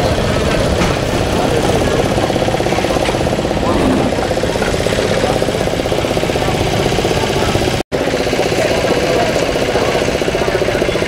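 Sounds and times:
engine running: 0:00.0 - 0:11.0
indistinct voices: 0:02.7 - 0:05.5.

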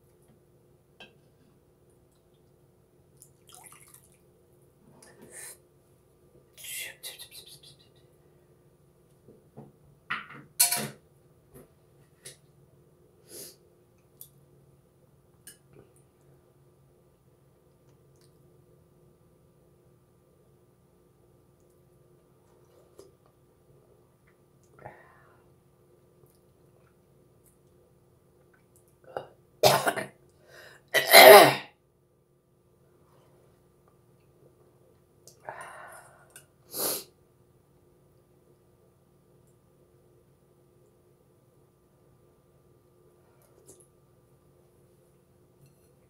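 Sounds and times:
woman coughing: 0:29.6 - 0:30.1, 0:31.0 - 0:31.7.

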